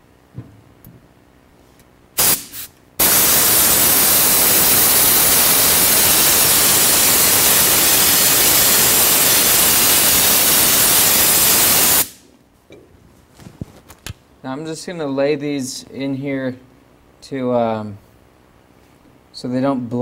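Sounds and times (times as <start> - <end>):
blast of air: 2.2 - 12.2
spray gun hissing: 2.2 - 12.2.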